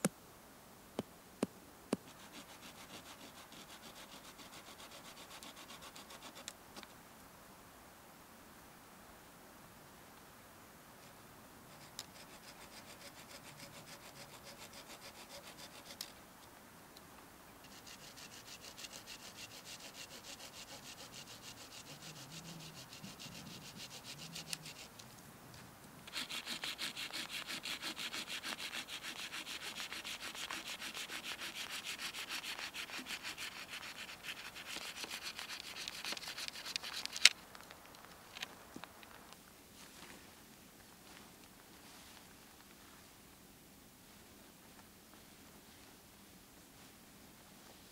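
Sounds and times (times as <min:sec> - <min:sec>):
hand saw cutting a branch: 0:02.1 - 0:06.5, 0:11.8 - 0:16.1, 0:17.7 - 0:24.9, 0:26.1 - 0:37.4.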